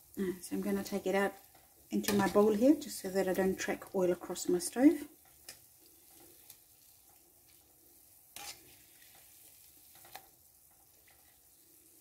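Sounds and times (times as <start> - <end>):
oil sizzling: 0.0 - 12.0
skimmer scraping pan: 8.3 - 10.3.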